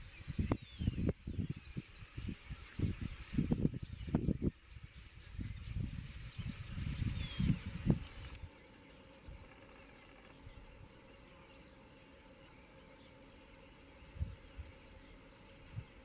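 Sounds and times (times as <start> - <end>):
starlings chirping and whistling: 0.0 - 16.0.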